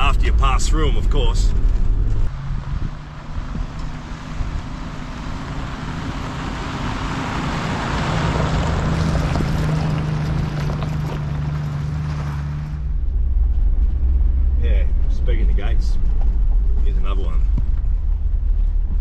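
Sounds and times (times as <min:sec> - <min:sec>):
vehicle engine hum: 0:00.0 - 0:19.0
tyres on gravel: 0:03.7 - 0:13.4.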